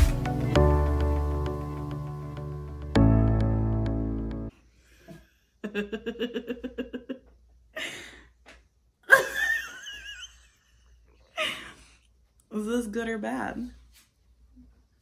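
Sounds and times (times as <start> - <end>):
woman laughing: 5.6 - 8.2, 9.1 - 11.8.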